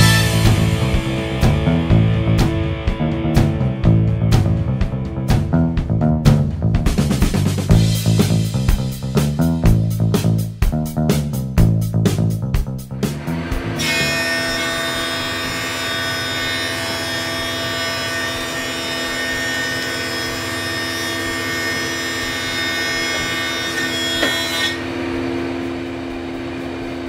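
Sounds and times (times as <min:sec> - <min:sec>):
planer cutting wood: 0:00.0 - 0:00.9, 0:13.1 - 0:25.3
motor hum: 0:13.0 - 0:16.0.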